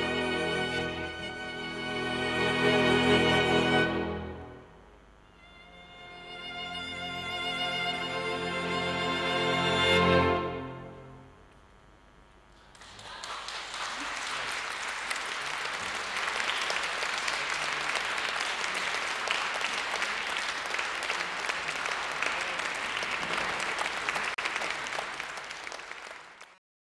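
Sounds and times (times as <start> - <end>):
audience applauding: 12.5 - 26.6.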